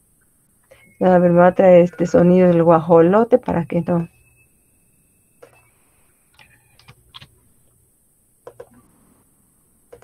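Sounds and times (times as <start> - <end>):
keyboard and mouse clicks: 6.3 - 7.3, 8.4 - 8.9.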